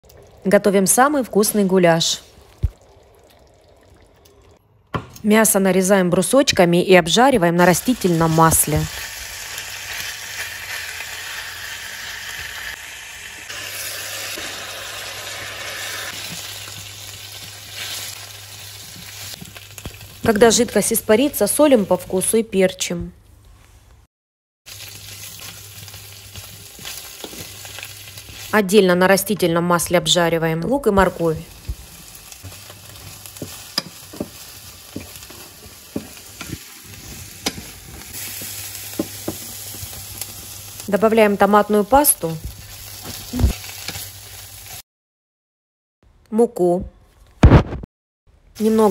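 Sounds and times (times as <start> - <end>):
meat sizzling in oil: 7.6 - 20.8, 24.7 - 28.7, 31.2 - 44.8
spatula stirring meat: 24.8 - 28.5, 31.7 - 40.0.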